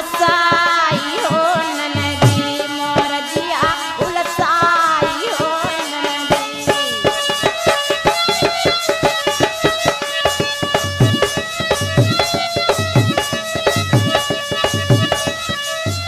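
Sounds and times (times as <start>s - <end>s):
rattle percussion: 0.0s - 16.0s
drum beat: 4.4s - 16.0s.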